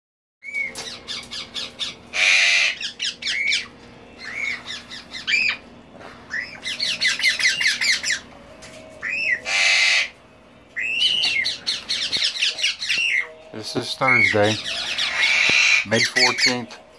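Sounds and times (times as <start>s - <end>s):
parrot harsh squawks: 0.4s - 5.6s, 9.0s - 10.2s, 14.1s - 16.5s
parrot clicking chatter: 14.6s - 16.4s.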